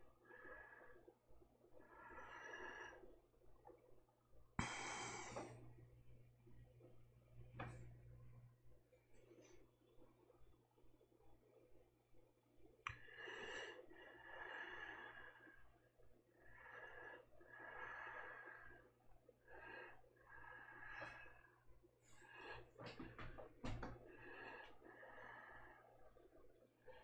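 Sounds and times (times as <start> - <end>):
person breathing slowly: 0.0 - 3.2, 4.6 - 5.9, 12.9 - 27.0.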